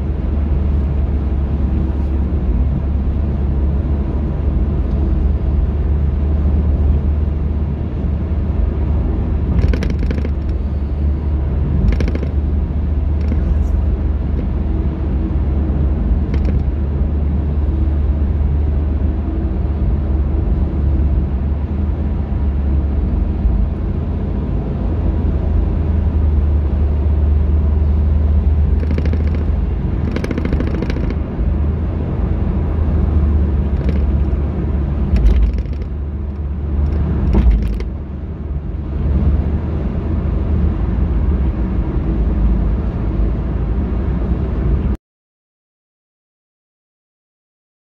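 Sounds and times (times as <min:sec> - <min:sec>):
car road and engine rumble: 0:00.0 - 0:45.0
short clicks and knocks: 0:09.6 - 0:10.6, 0:11.8 - 0:12.4, 0:13.2 - 0:13.5, 0:16.3 - 0:16.7, 0:28.8 - 0:31.2, 0:33.8 - 0:34.3, 0:35.1 - 0:37.9.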